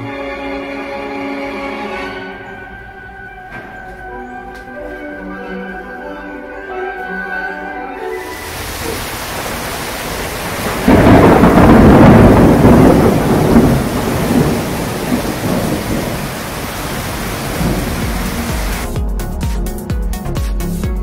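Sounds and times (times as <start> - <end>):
heavy rain falling: 8.2 - 18.9
thunder rumbling: 8.2 - 18.9.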